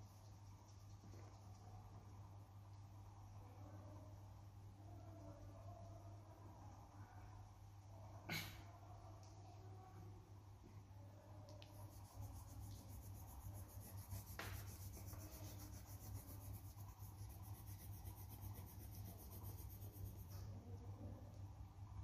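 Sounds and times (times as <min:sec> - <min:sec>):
pencil scratching on paper: 0:11.7 - 0:20.4.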